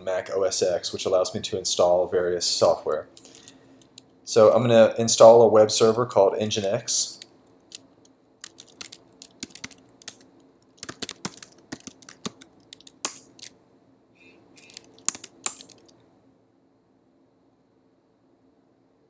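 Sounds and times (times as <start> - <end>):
computer keyboard typing: 8.4 - 13.5, 14.6 - 16.0.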